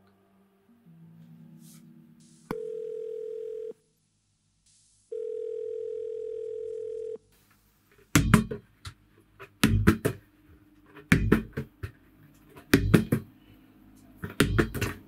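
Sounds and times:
volleyball bouncing: 8.2 - 9.0, 9.6 - 10.2, 11.0 - 12.0, 12.6 - 13.3, 14.2 - 15.0.

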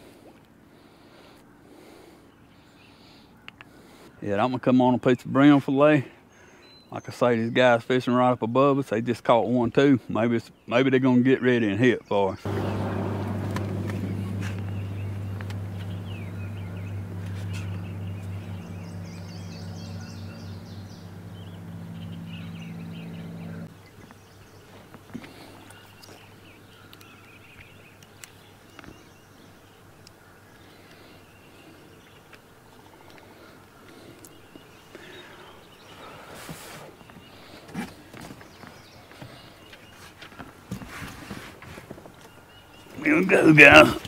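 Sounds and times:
birds chirping: 0.8 - 5.6, 10.4 - 40.9, 41.9 - 44.0
motor humming: 12.5 - 23.7.

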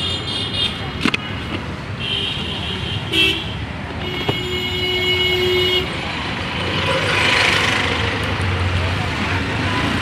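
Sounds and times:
vehicle horns honking: 0.0 - 5.9
road traffic rumbling: 0.0 - 10.0.

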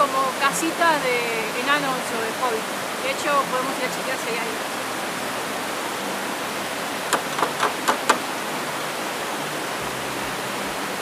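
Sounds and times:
stream rushing over rocks: 0.0 - 11.0
quick sharp knocks: 7.1 - 8.2.

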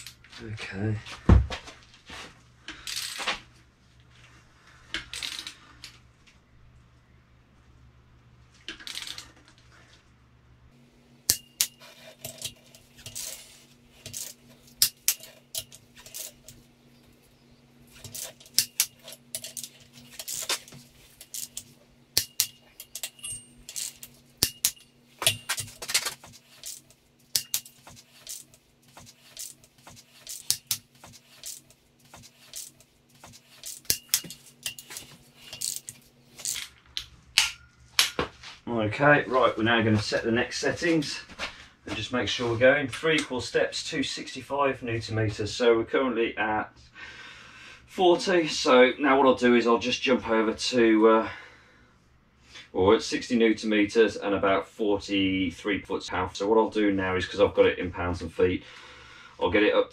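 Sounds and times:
faint steady hum: 0.0 - 59.9
ratchet wrench clicking: 26.4 - 36.6.

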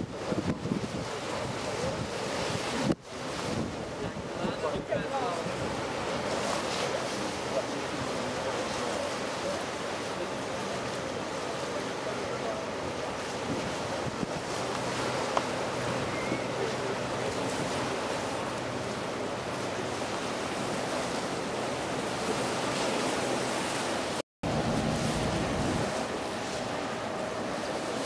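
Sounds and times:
wind on microphone: 0.0 - 6.8, 13.2 - 28.0
sea water washing against rocks: 0.0 - 28.0.

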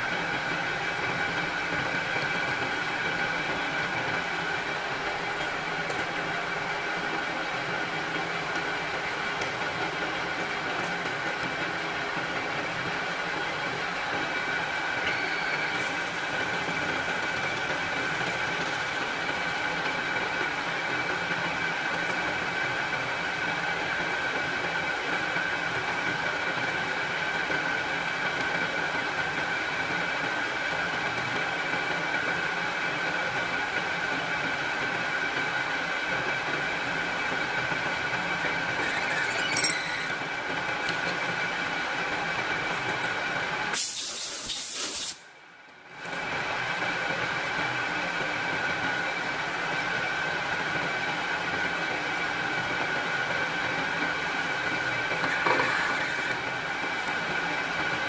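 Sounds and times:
metal lathe drilling: 38.7 - 41.0.

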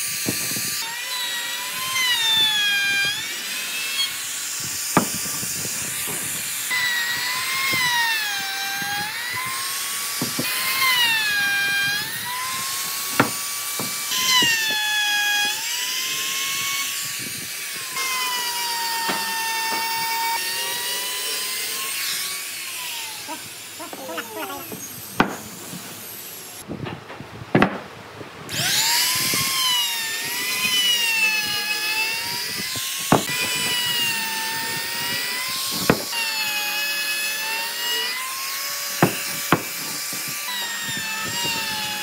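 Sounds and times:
trim router whining: 0.0 - 26.7, 28.5 - 42.0
sharp knocks: 5.0 - 6.4, 13.1 - 14.6, 26.8 - 27.9, 39.0 - 40.3.

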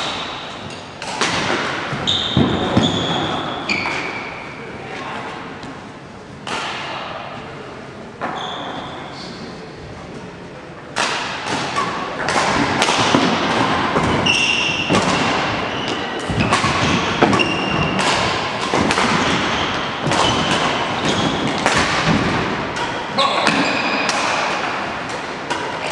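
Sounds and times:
shoes squeaking on floor: 2.0 - 4.3, 8.2 - 9.2, 14.1 - 18.0, 19.2 - 21.6, 23.2 - 24.1
thuds and knocks on court: 16.2 - 22.6.

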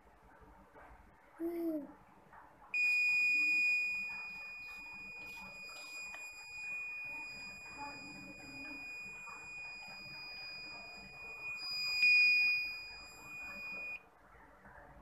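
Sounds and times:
buzzer high-pitched tone: 2.8 - 14.0.

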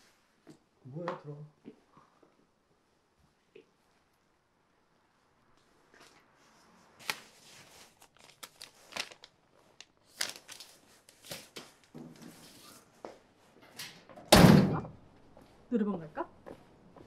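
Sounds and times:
clothing and paper rustling: 5.6 - 13.6
loud thump: 14.3 - 14.9.

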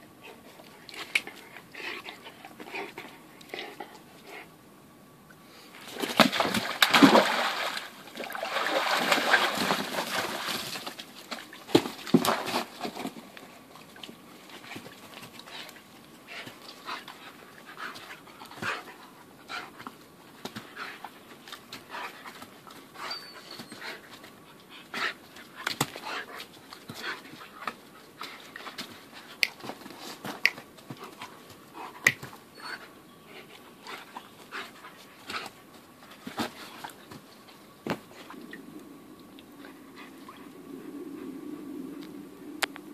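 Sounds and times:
dog splashing water: 6.0 - 10.8.

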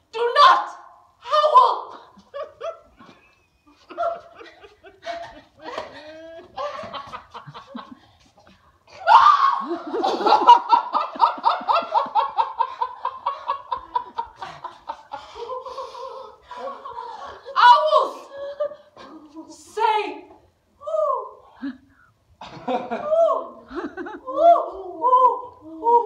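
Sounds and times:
people laughing: 2.0 - 8.6, 9.4 - 19.2, 22.4 - 24.9.

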